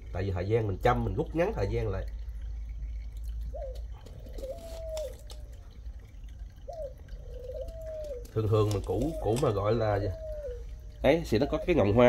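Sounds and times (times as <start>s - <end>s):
dove cooing: 2.9s - 12.0s.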